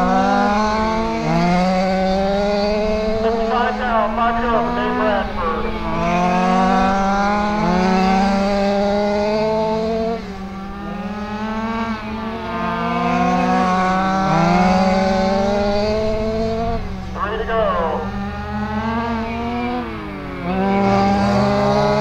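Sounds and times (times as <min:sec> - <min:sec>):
rc car engines racing: 0:00.0 - 0:17.4.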